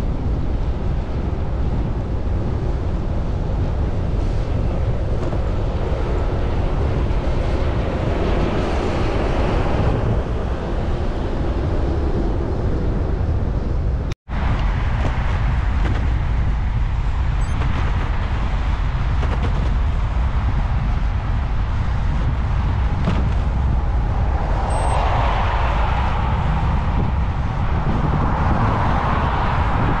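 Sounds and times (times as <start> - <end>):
wind rumble on microphone: 0.0 - 30.0
car passing: 22.2 - 30.0.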